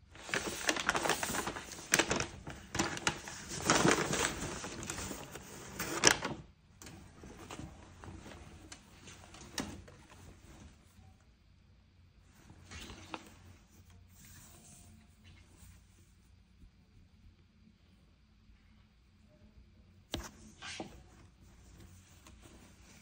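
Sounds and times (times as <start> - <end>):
fabric rustling: 0.1 - 6.2, 6.9 - 11.2, 20.1 - 23.0
paper bag crinkling: 0.1 - 6.4.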